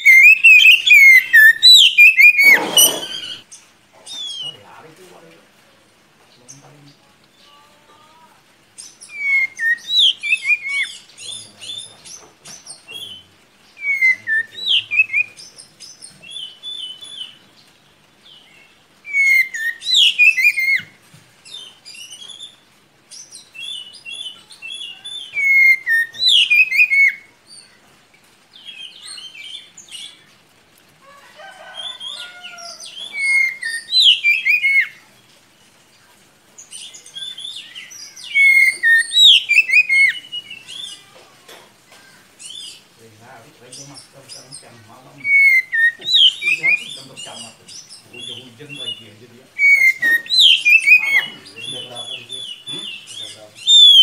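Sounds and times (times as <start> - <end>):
bird singing whistles and trills: 0.0 - 3.4, 8.8 - 17.4, 19.1 - 20.9, 23.2 - 27.3, 32.9 - 35.0, 36.8 - 41.0, 44.3 - 54.0.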